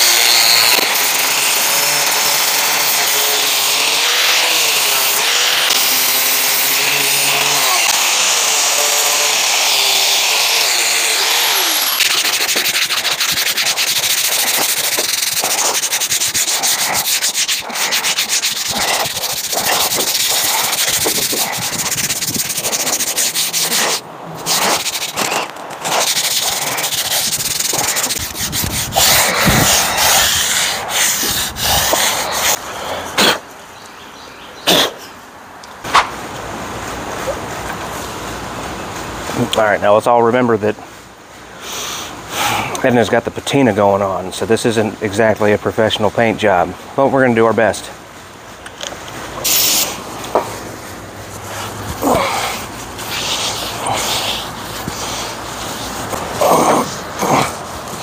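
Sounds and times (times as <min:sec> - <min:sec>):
sanding rust off sheet metal: 0:00.0 - 0:32.6, 0:49.4 - 0:50.6, 0:51.2 - 0:58.0.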